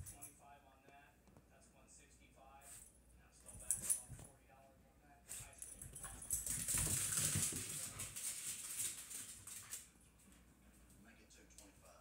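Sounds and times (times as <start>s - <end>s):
dog claws scrabbling on floor: 5.6s - 9.9s.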